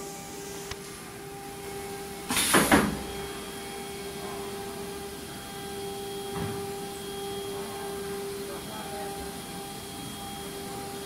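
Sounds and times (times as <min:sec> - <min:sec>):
cnc router humming: 0:00.0 - 0:11.0
compressed air hiss: 0:02.3 - 0:03.0.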